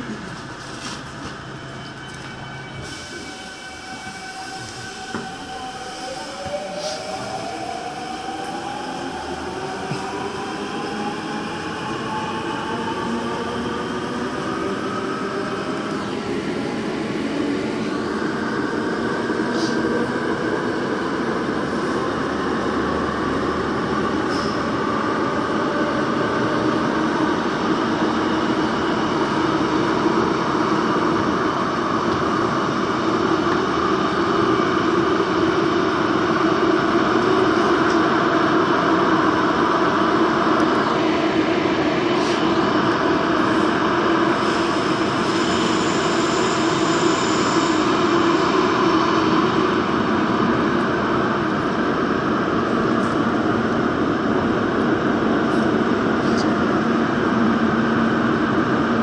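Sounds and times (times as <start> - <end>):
subway train rumbling in tunnel: 0.0 - 59.0.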